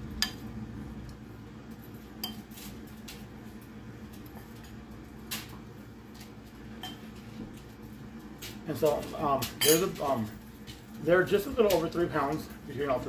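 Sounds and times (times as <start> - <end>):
metal spoon clinking on bowl: 9.6 - 10.0.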